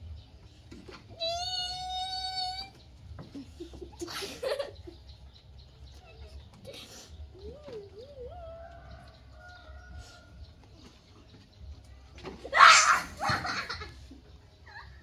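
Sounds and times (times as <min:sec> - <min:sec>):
baby monkey screeching: 0:12.5 - 0:13.8.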